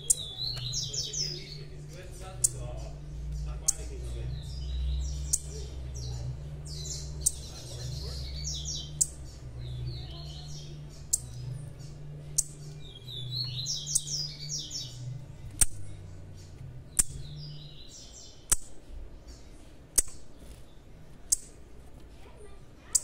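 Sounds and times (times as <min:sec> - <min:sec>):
bird chirping: 0:00.0 - 0:21.8, 0:22.8 - 0:23.0
sharp bird tick: 0:11.0 - 0:11.4, 0:12.3 - 0:12.7, 0:15.5 - 0:17.4, 0:18.4 - 0:18.8, 0:19.9 - 0:20.3, 0:21.2 - 0:21.6.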